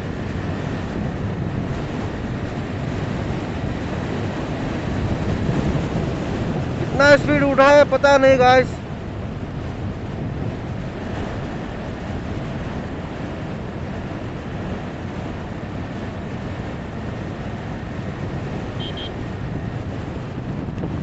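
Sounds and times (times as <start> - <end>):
motorcycle engine and road roar: 0.0 - 21.0
wind rushing over microphone: 0.0 - 21.0
short high beeps: 18.8 - 19.2.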